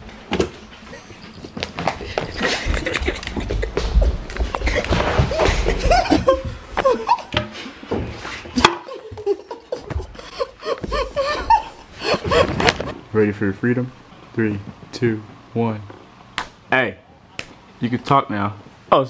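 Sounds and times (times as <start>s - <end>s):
laughter: 2.3s - 7.4s, 8.6s - 12.8s.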